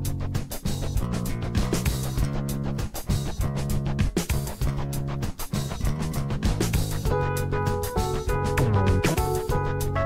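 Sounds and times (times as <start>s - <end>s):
steady drum beat: 0.0s - 9.8s
music with held notes: 0.0s - 10.0s.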